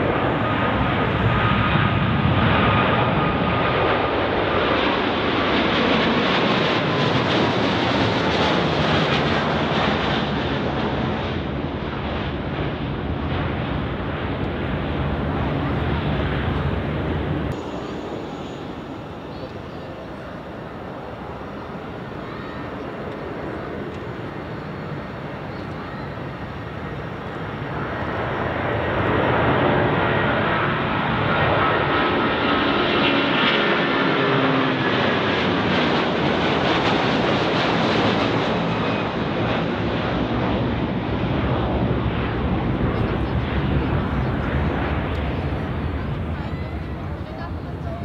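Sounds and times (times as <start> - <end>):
jet engine roar at takeoff: 0.0 - 48.0.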